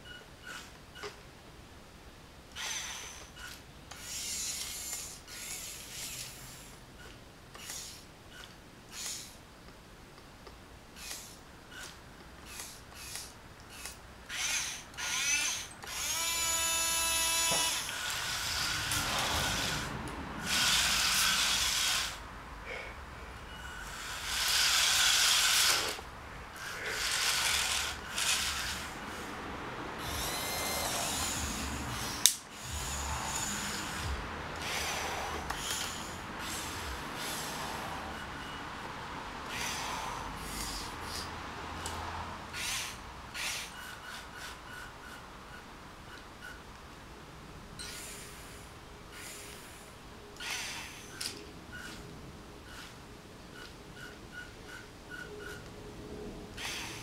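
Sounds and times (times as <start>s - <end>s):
small electric motors whining: 2.6s - 9.4s, 11.0s - 22.2s, 23.4s - 29.3s, 30.0s - 45.6s, 47.8s - 49.8s, 50.4s - 52.0s, 56.6s - 57.0s.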